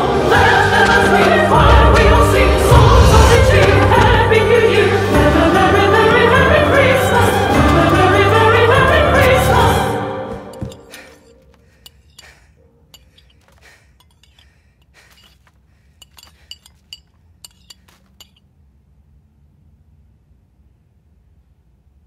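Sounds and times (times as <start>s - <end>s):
choral music: 0.0s - 11.6s
dishes and cutlery clinking: 10.3s - 14.5s, 15.1s - 18.4s.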